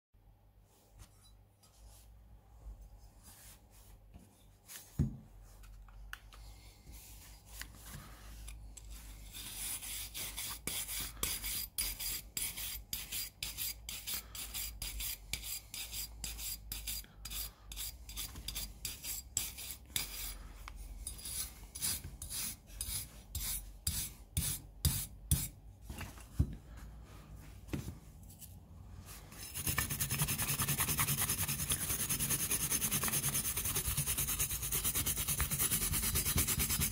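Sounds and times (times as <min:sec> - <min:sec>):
brush scrubbing metal: 0:29.3 - 0:36.9.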